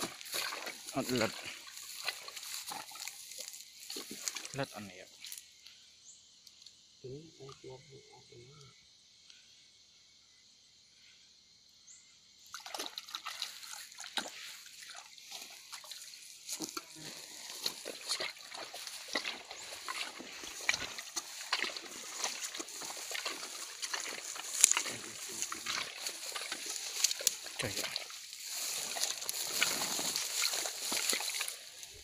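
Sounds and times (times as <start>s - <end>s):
boots tramping through wet grass: 0.0s - 4.6s, 12.6s - 32.0s.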